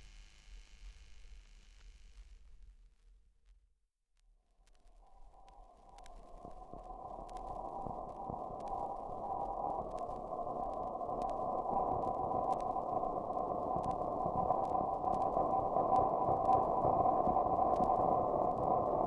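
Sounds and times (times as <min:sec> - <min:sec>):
faint clicks: 0:04.6 - 0:19.0
grainy drone with held tones: 0:04.8 - 0:19.0.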